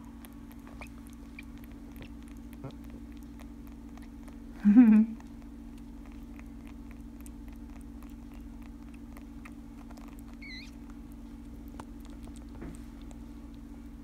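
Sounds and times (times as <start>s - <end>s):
rabbit suckling clicks: 0.0s - 4.6s, 5.2s - 14.0s
low electrical hum: 0.0s - 14.0s.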